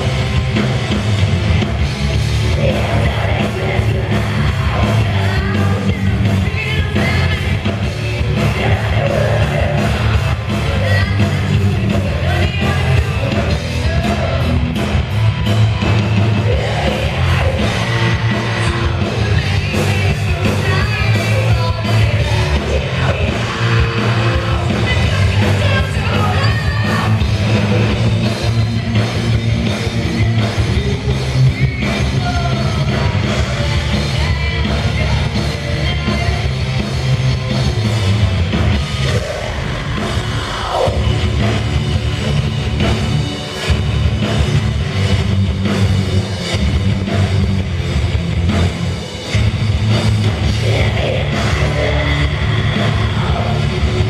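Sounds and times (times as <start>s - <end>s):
distorted electric guitar: 0.0s - 54.0s
live heavy rock band: 0.0s - 54.0s
woman singing: 2.8s - 9.9s, 10.6s - 14.0s, 16.8s - 27.2s, 33.4s - 36.5s.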